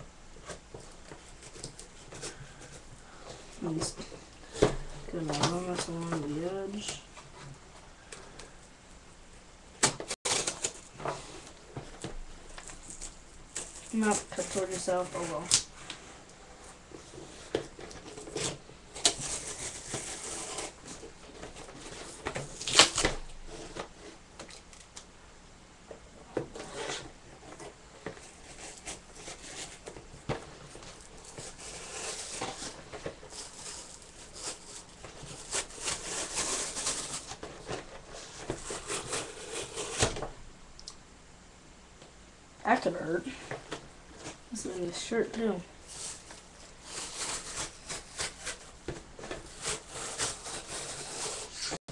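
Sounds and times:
knife cutting plastic packaging: 9.8s - 10.9s, 12.5s - 15.7s, 17.9s - 21.0s, 21.8s - 23.2s, 30.8s - 40.2s, 46.0s - 48.7s, 49.3s - 51.8s
plastic crinkling and scraping: 10.0s - 24.9s, 26.3s - 40.3s, 43.3s - 51.8s.

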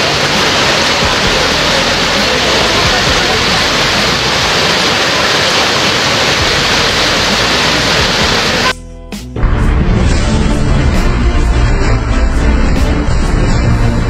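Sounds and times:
rushing water hiss: 0.0s - 8.7s.

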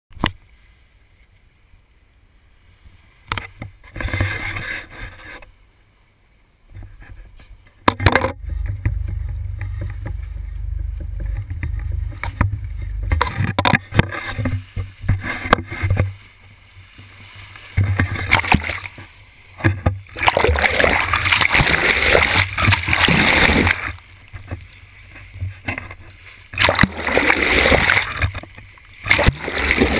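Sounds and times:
steady low rumble: 8.2s - 15.0s
wind buffeting microphone: 8.4s - 16.2s
rushing splashing water: 11.6s - 29.9s.

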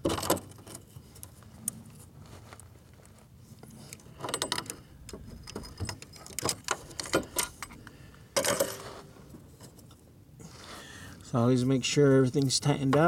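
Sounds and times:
tools clattering: 3.8s - 10.0s
metal hand tools clinking: 8.4s - 9.0s.

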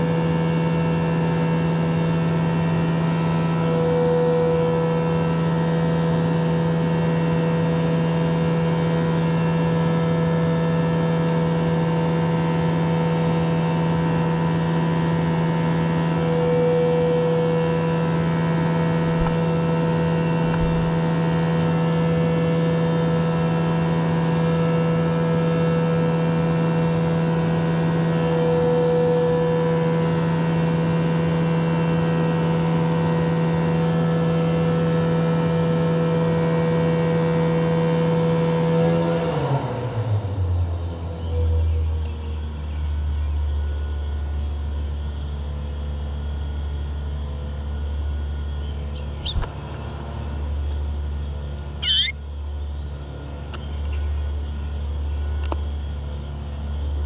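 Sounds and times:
machine hum: 17.2s - 21.8s.

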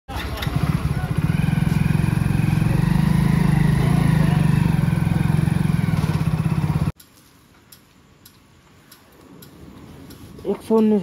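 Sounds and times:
motorcycle engine droning: 0.1s - 7.0s
road noise: 0.1s - 11.0s.

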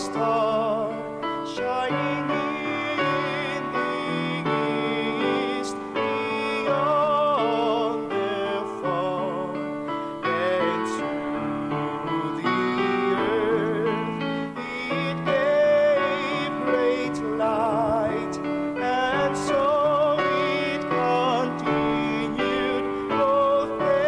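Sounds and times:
person singing a hymn: 0.0s - 24.0s
sustained keyboard chords: 0.0s - 24.0s.

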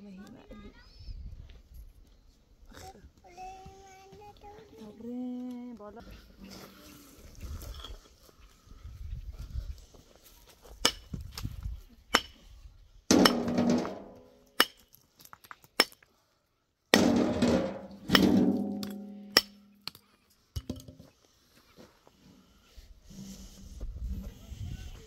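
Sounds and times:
heavy ringing impacts: 17.0s - 19.8s.

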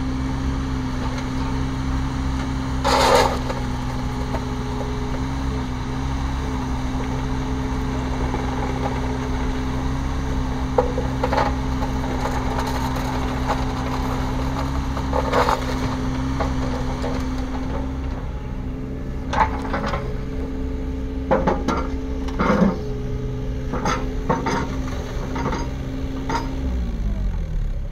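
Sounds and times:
excavator diesel engine running: 0.0s - 27.9s.

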